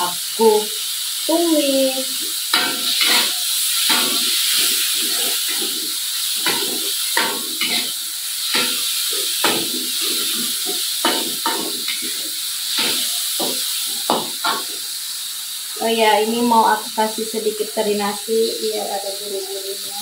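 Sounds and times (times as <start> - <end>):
oil sizzling in a wok: 0.0 - 20.0
metal spatula scraping a pan: 2.3 - 15.0.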